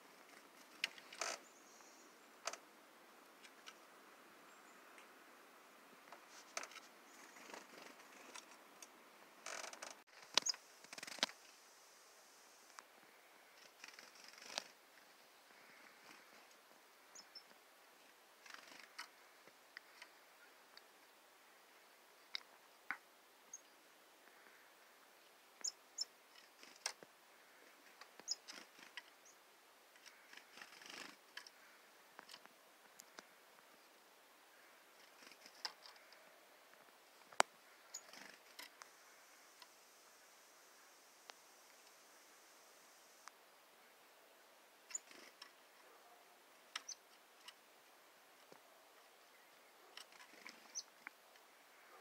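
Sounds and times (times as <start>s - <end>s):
chickadee chirps: 25.6s - 26.8s, 28.2s - 29.4s, 37.8s - 38.4s, 44.9s - 45.4s, 46.7s - 47.0s, 49.3s - 51.0s.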